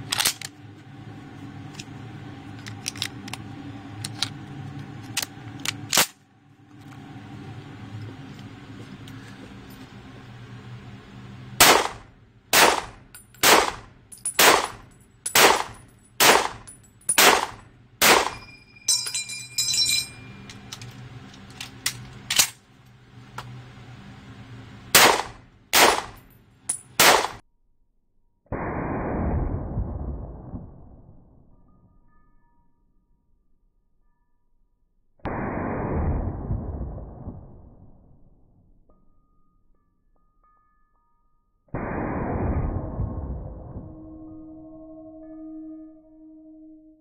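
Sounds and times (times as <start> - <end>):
rifle shots echoing indoors: 11.6 - 18.5, 25.0 - 26.2, 27.0 - 27.4.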